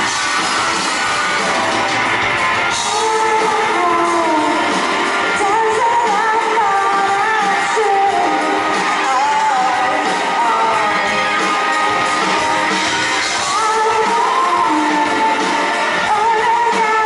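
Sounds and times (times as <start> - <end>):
electric guitar: 0.0 - 17.0
live rock band playing: 0.0 - 17.0
woman singing: 2.7 - 12.0, 13.2 - 17.0.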